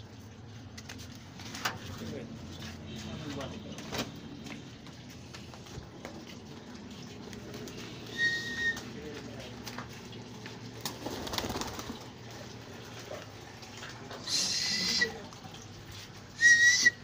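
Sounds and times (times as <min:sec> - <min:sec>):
short high whistle: 0:08.1 - 0:08.8, 0:16.4 - 0:17.0.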